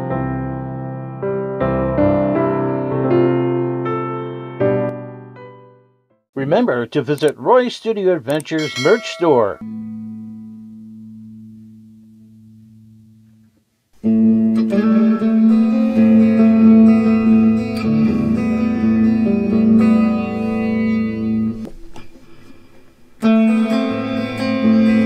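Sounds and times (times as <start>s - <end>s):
electric guitar with reverb: 14.0s - 25.0s.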